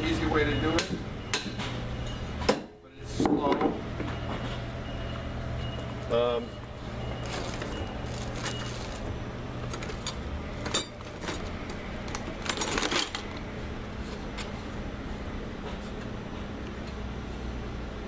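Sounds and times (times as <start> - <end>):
metal clattering: 9.6 - 13.4.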